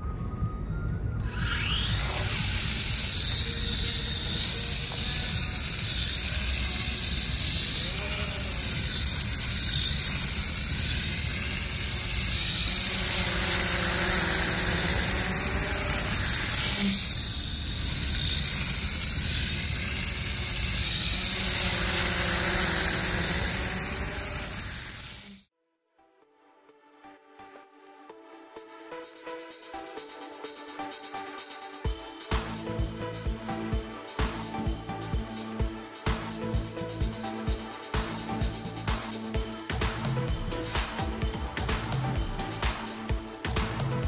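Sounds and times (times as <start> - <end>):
steady high tone: 0.0 - 25.4
drone propellers buzzing: 1.2 - 25.4.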